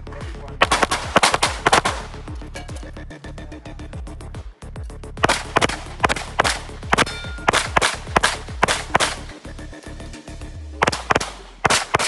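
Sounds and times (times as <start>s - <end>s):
rapid pistol fire: 0.6s - 2.2s, 5.2s - 9.3s, 10.8s - 12.0s
steel targets ringing: 7.0s - 7.7s.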